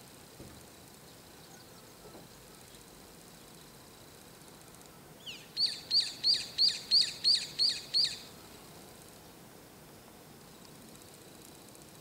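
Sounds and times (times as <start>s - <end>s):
bulbul calling: 5.2s - 8.3s.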